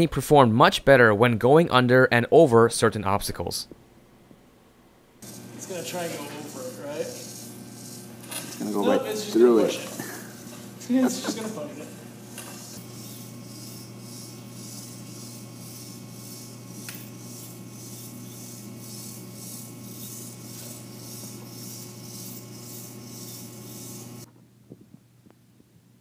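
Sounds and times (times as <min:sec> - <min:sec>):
steady low hum: 0:03.6 - 0:26.0
robot servos rasping: 0:05.2 - 0:24.3.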